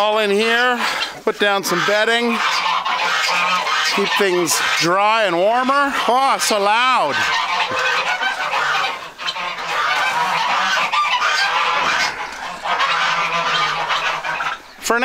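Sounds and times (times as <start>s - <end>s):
geese honking: 0.0s - 15.0s.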